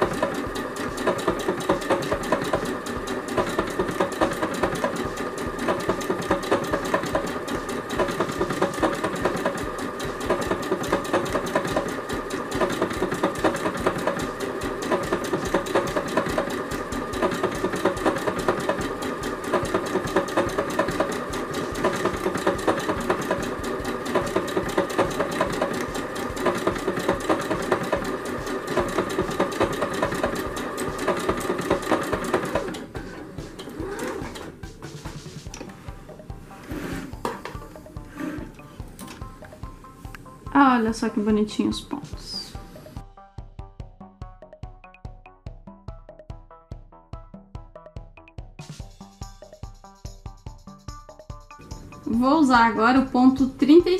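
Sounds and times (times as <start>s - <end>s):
sewing machine needle patter: 0.0s - 34.5s
sewing machine motor hum: 0.0s - 40.4s, 51.6s - 53.9s.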